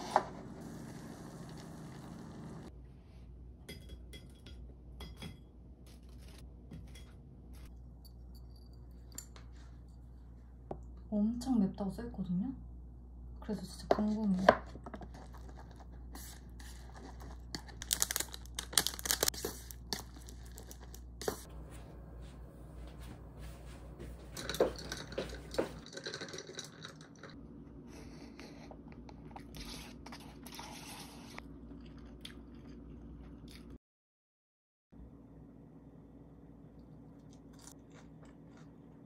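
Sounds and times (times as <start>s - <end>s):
chopsticks stirring wet noodles: 23.4s - 27.4s.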